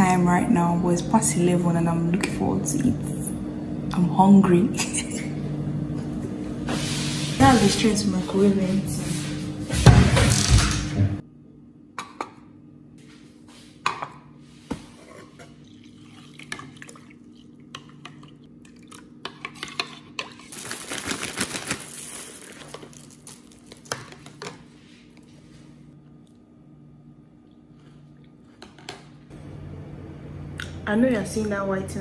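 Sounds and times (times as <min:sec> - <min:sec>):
cereal poured into milk: 0:20.5 - 0:24.2.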